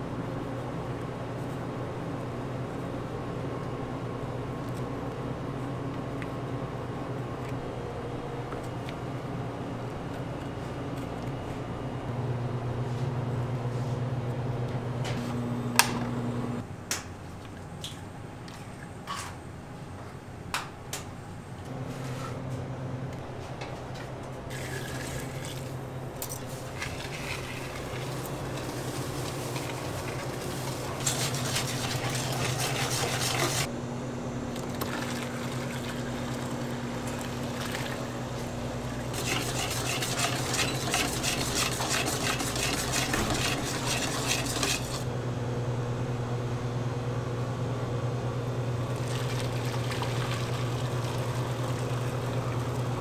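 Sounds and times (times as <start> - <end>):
steady machine hum: 0.0 - 17.3, 19.4 - 53.0
liquid being handled: 24.5 - 33.7
utensils clattering: 24.5 - 33.7, 39.1 - 45.0.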